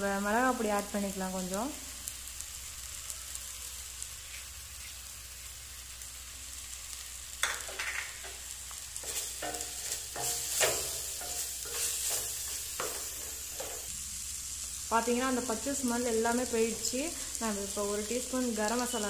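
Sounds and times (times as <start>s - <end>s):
masala sizzling in a pan: 0.0s - 19.0s
spatula scraping a steel pan: 9.0s - 13.9s.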